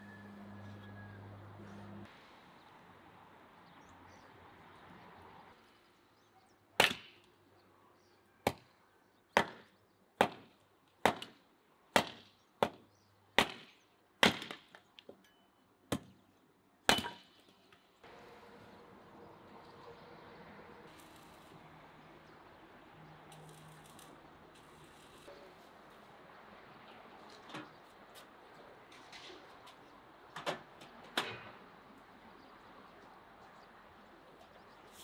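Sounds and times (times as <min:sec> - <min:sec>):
hatchet chopping wood: 0:06.8 - 0:07.2, 0:09.4 - 0:14.7, 0:15.9 - 0:16.1, 0:16.9 - 0:17.3.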